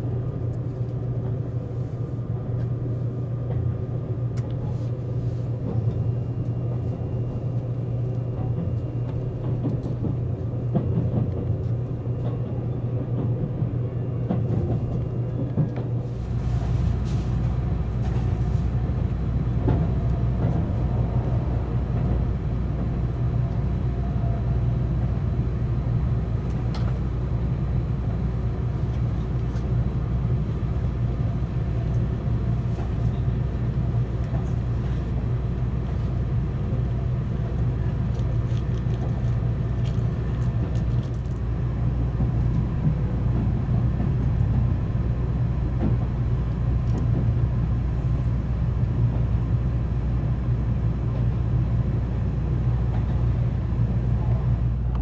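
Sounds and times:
train rumbling inside cabin: 0.0 - 55.0.

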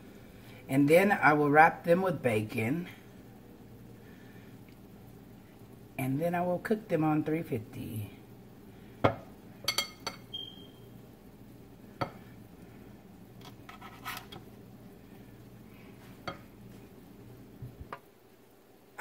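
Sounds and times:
faint low hum: 0.0 - 19.0
spoon scraping glass bowl: 13.6 - 14.4.

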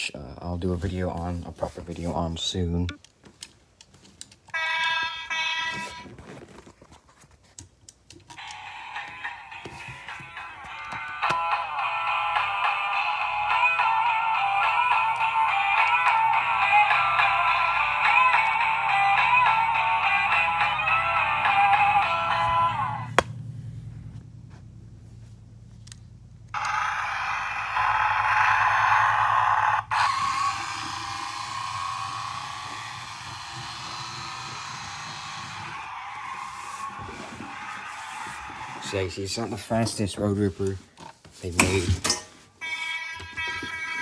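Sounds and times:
toy car motor and gears whirring: 26.5 - 39.2.

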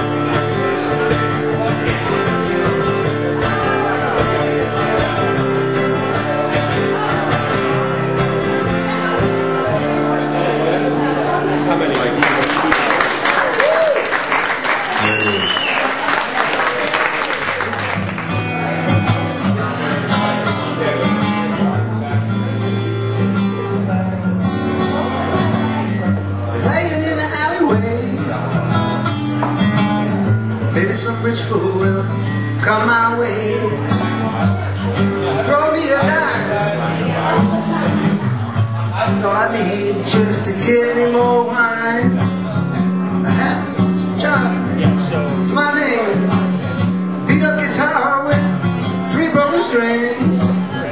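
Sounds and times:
acoustic guitar strumming: 0.0 - 12.4, 17.2 - 50.9
man singing into microphone: 26.5 - 28.7, 30.2 - 38.1, 38.8 - 42.6, 43.2 - 50.9.

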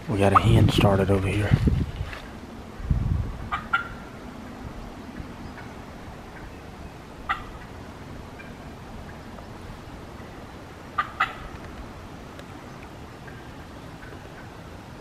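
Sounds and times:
wind on microphone: 0.0 - 10.2
turkey hen calling: 3.5 - 4.3, 5.1 - 11.7.

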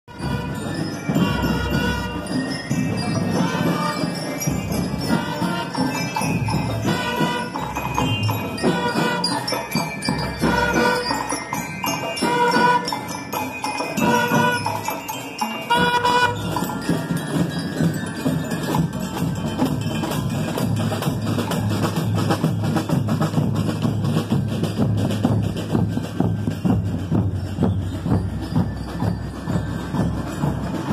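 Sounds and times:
bell lyres playing melody: 0.1 - 30.9
snare and bass drums: 15.7 - 30.9.

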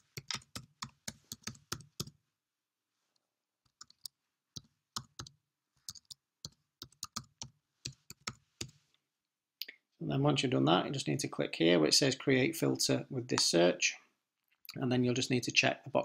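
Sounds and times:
keyboard typing: 0.0 - 2.2, 3.7 - 8.7.

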